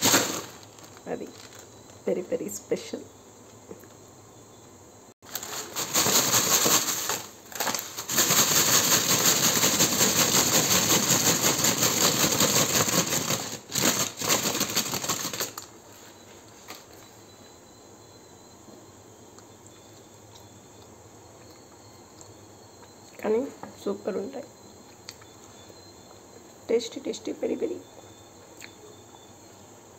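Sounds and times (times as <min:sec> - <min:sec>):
paper bag rustling: 0:00.0 - 0:01.7, 0:05.2 - 0:10.3, 0:11.0 - 0:16.2.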